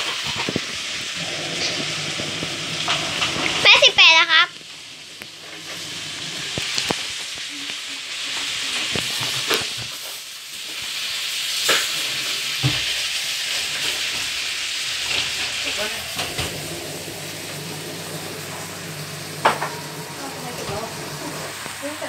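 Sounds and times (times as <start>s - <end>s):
washing machine laundry swishing: 15.0s - 22.0s.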